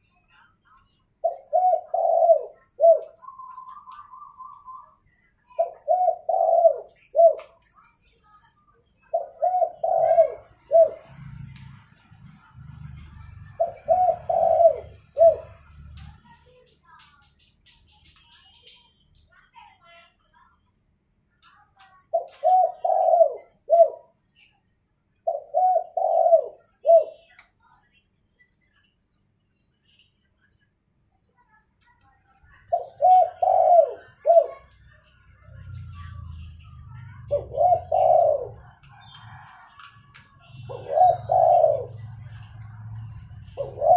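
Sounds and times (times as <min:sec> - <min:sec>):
dove cooing: 0:01.2 - 0:07.7, 0:09.0 - 0:16.4, 0:22.0 - 0:24.2, 0:25.2 - 0:27.4, 0:32.5 - 0:43.9.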